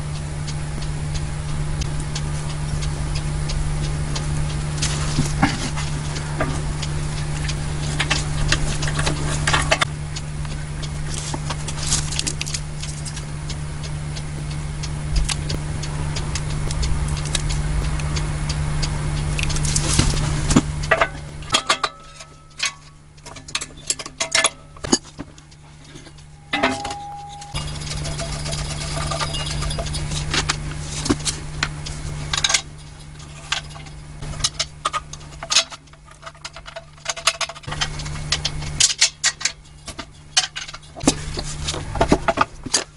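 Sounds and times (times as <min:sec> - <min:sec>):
steady low hum: 0:00.0 - 0:42.9
metal parts clinking: 0:26.5 - 0:30.3.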